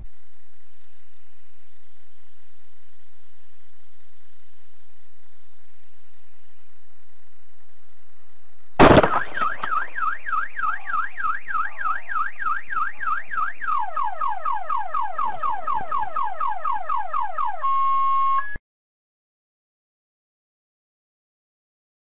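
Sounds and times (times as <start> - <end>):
loud crash: 8.8 - 9.9
car alarm warbling: 8.8 - 18.6.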